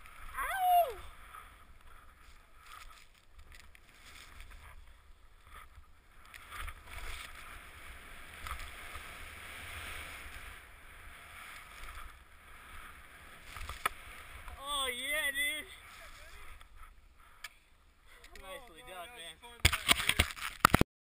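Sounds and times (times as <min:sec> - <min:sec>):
skis hissing over snow: 0:06.9 - 0:14.5, 0:15.5 - 0:16.6.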